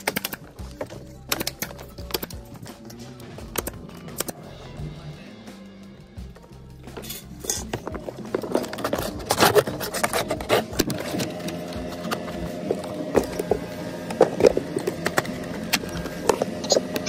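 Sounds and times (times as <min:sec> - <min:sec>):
steady mechanical hum: 0:06.3 - 0:17.0.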